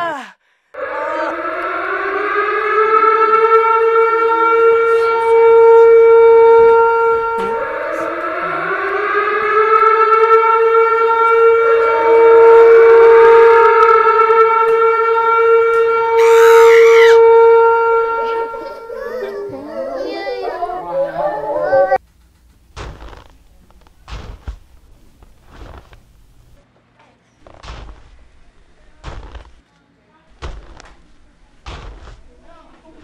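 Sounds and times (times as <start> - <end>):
siren winding up: 0.8 - 19.3.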